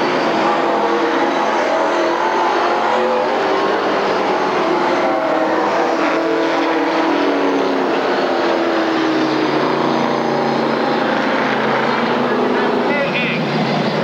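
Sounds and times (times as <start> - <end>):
race car engines passing: 0.0 - 14.0.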